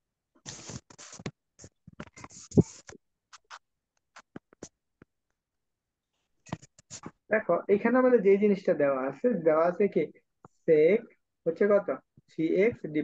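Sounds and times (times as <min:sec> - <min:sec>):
stylus scratching on tablet: 0:00.4 - 0:04.8, 0:06.4 - 0:07.2.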